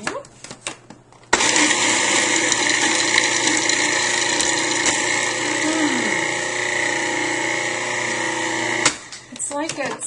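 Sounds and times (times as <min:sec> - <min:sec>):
food processor grinding: 0:01.4 - 0:09.3.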